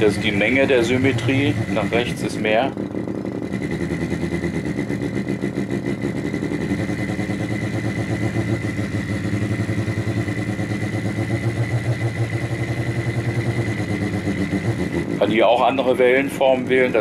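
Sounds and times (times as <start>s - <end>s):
fast throbbing artificial engine sound: 0.0s - 17.0s.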